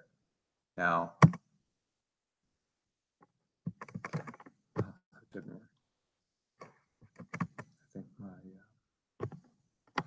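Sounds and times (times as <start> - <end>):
computer keyboard keys clicking: 3.7 - 4.5, 7.1 - 7.7.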